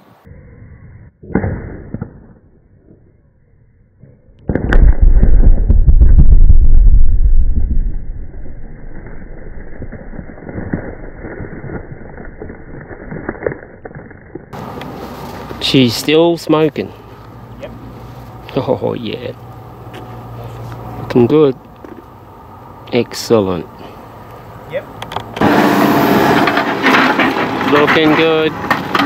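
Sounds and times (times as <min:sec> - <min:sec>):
scattered cracks: 0:04.4 - 0:14.9
rock blast rumble: 0:04.5 - 0:13.2.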